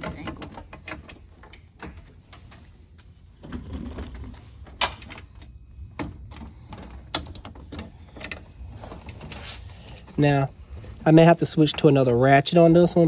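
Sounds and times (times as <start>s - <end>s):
shuffling handling noise: 6.4s - 12.4s.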